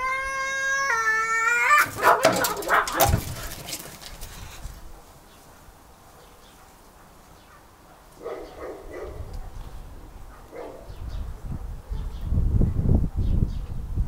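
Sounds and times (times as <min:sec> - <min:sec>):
cat growls and moans: 0:00.0 - 0:02.0
cats scuffling: 0:01.8 - 0:04.9.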